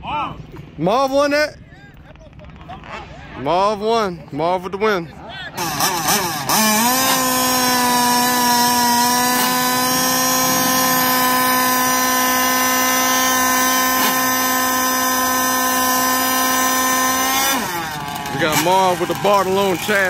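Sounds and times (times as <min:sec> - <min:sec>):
small motor whining: 0:05.6 - 0:20.0.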